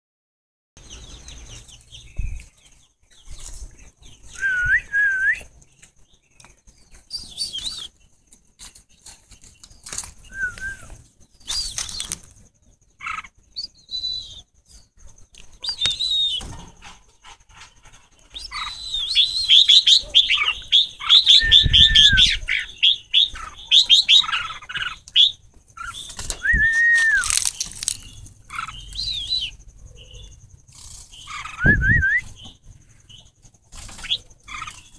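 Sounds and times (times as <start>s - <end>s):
bulbuls chirping: 0.8s - 34.9s
rustling: 26.0s - 28.4s.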